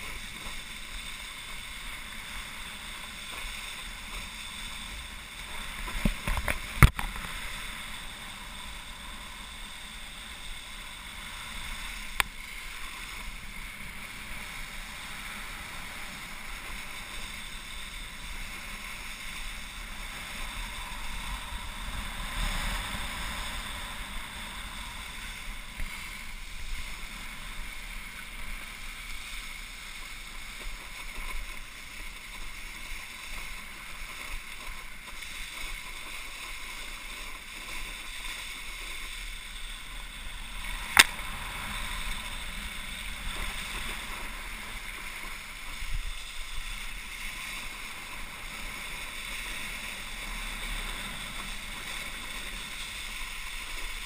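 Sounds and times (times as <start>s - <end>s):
water spray from wakeboard: 0.0s - 54.0s
wind rushing over camera: 0.0s - 54.0s.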